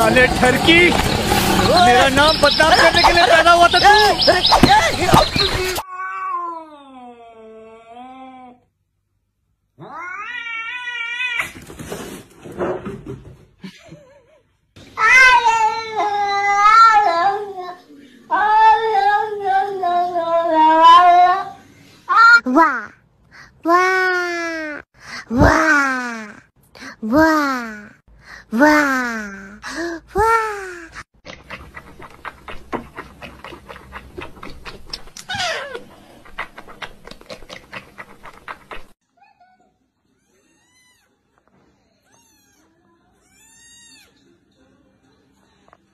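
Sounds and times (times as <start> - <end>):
cat yowling: 9.8 - 11.4.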